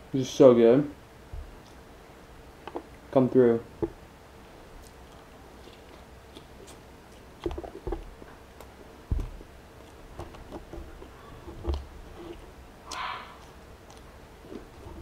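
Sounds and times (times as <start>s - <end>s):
chewing with mouth closed: 4.8s - 15.0s.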